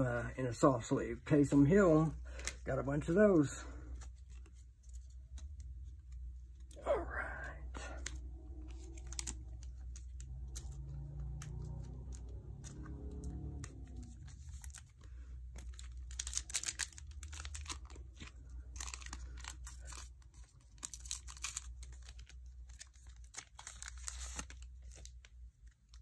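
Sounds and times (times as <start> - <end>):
cards being handled: 1.5 - 6.8, 7.5 - 26.0
foil wrapper crinkling: 14.0 - 26.0.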